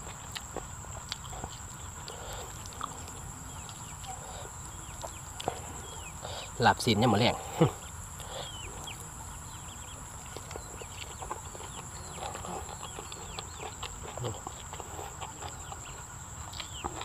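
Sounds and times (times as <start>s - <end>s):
high insect drone: 0.0s - 17.0s
chickens peeping: 0.1s - 17.0s.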